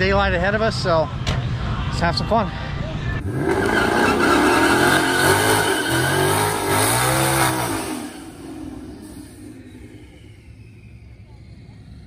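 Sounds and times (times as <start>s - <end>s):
car engine revving: 3.2s - 12.0s
tires spinning: 3.2s - 12.0s.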